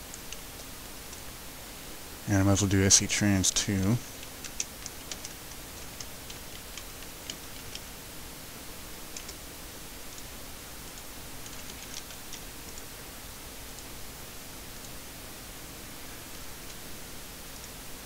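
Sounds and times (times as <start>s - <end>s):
steady hiss: 0.0s - 18.0s
computer keyboard keystrokes: 4.2s - 7.9s, 9.1s - 9.4s, 11.4s - 12.8s.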